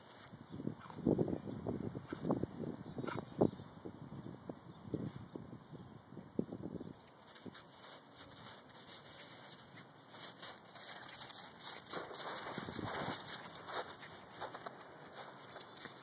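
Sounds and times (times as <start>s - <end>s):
footsteps crunching in snow: 7.2s - 16.0s.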